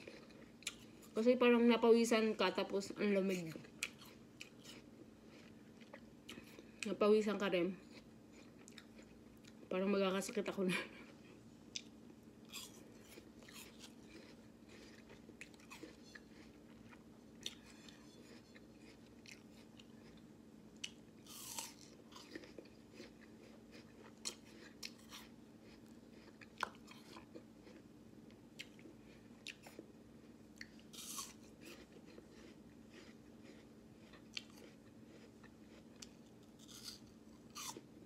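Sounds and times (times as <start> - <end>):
apple crunching: 11.7 - 20.2, 20.8 - 27.8, 30.6 - 38.0
wet chewing: 12.5 - 20.2, 20.8 - 27.8.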